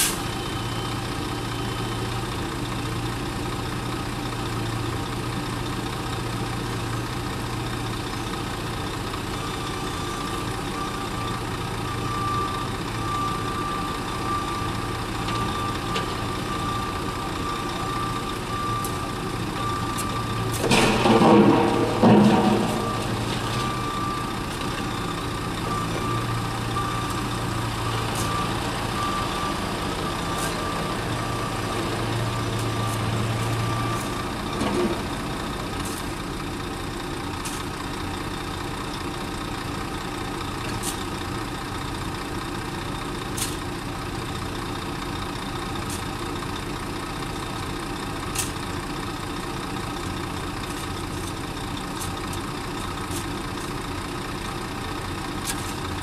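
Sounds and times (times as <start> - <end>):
reversing alarm beeping: 0.0 - 2.4, 9.1 - 36.6
diesel machinery engine hum: 0.0 - 56.0.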